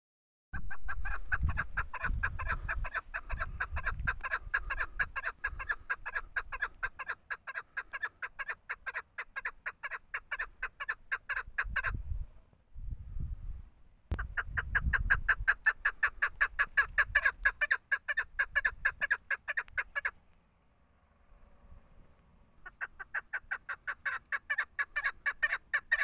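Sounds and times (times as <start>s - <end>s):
partridge clucking calls: 0.6s - 12.0s, 14.1s - 20.2s, 22.6s - 26.0s.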